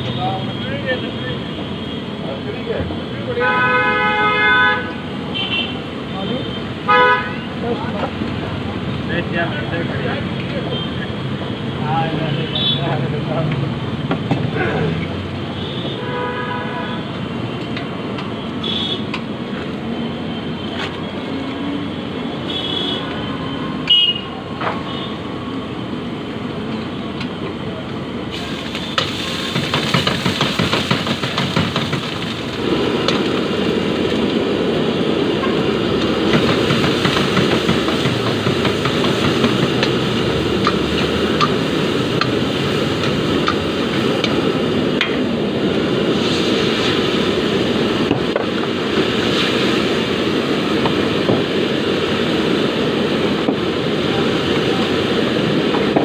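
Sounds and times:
street traffic: 0.0s - 56.0s
vehicle horn honking: 3.4s - 5.8s, 6.9s - 7.5s, 15.6s - 17.1s, 18.6s - 19.1s, 22.4s - 23.1s, 23.9s - 24.3s
food sizzling in a pan: 28.4s - 32.5s, 49.0s - 50.0s.

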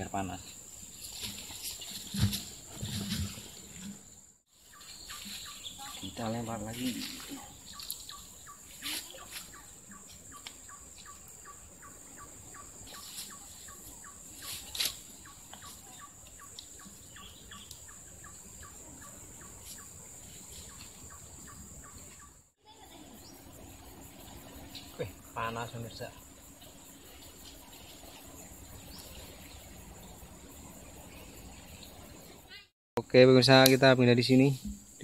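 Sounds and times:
bird calling: 4.6s - 32.6s
high-pitched insect drone: 22.6s - 35.0s.

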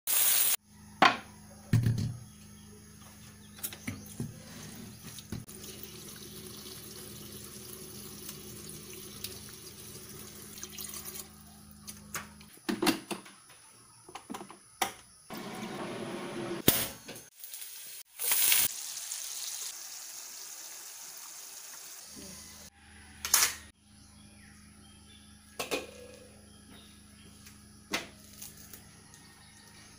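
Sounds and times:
tap water running into sink: 5.1s - 11.3s.

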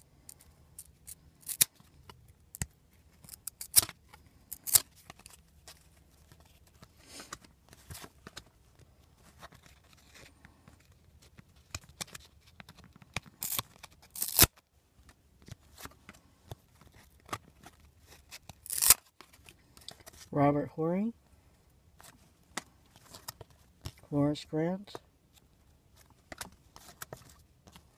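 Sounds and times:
trading cards flicking and snapping: 0.3s - 1.8s, 11.3s - 14.6s, 18.4s - 19.3s.

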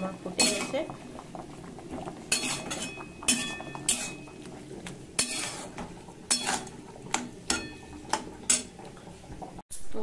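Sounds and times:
metal spatula scraping a pan: 2.3s - 4.4s, 5.2s - 6.8s.

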